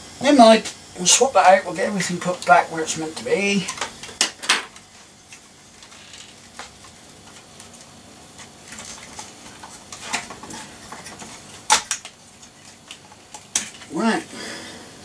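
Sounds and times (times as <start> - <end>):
hard drive clicks and metal scrapes: 3.6 - 13.9.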